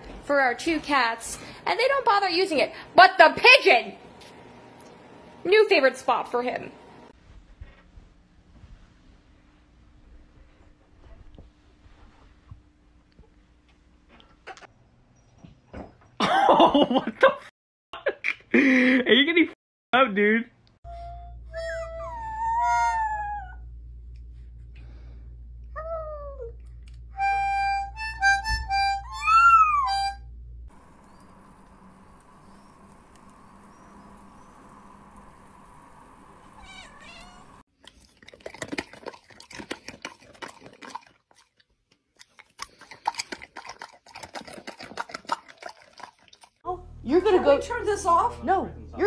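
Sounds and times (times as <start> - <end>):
toy harmonica notes: 20.9 - 22.9, 27.2 - 30.2
puppy howling: 21.9 - 23.7, 29.1 - 30.2
cat call: 29.1 - 30.1, 36.6 - 37.6
steady hum: 30.2 - 37.6.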